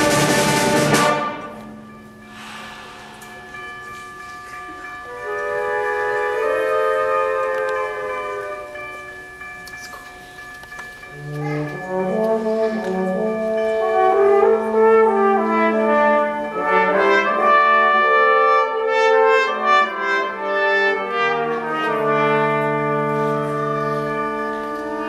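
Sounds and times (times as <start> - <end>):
symphonic band playing: 0.0 - 4.4, 5.1 - 8.6, 11.2 - 25.0
brass held chords: 11.2 - 25.0.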